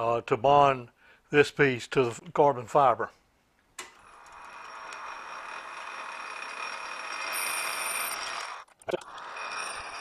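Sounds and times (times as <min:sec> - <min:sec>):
metal lathe whining: 0:04.0 - 0:10.0.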